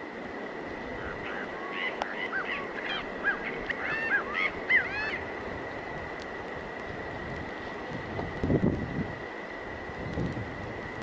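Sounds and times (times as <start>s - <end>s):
background hiss: 0.0s - 11.0s
nightjar calling: 0.9s - 5.3s.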